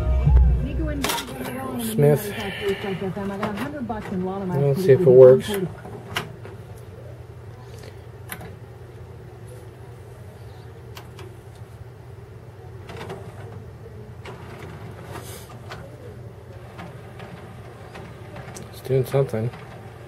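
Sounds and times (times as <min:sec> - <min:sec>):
steady low hum: 0:00.0 - 0:20.0
cd changer mechanism whirring: 0:10.7 - 0:20.0.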